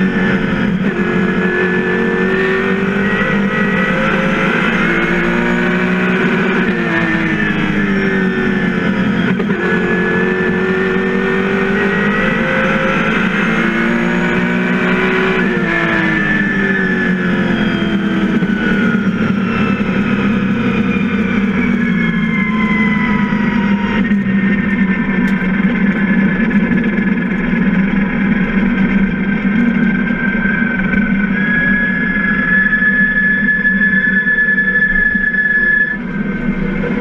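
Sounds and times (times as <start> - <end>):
car engine running: 0.0 - 37.0
thin high whine: 28.0 - 37.0.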